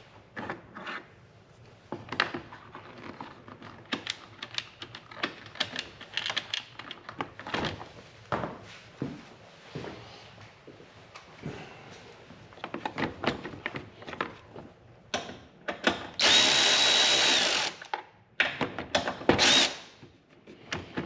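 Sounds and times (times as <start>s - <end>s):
electric ratchet motor whine: 16.2s - 17.9s, 19.4s - 19.8s.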